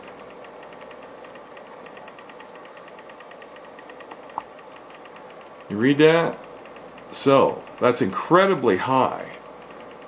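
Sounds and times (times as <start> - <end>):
spot welder humming and ticking: 0.0 - 10.0.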